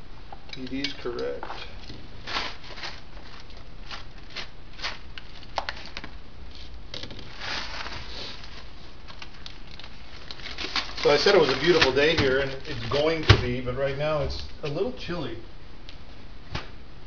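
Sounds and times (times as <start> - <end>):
plastic bag crinkling: 0.9 - 13.6.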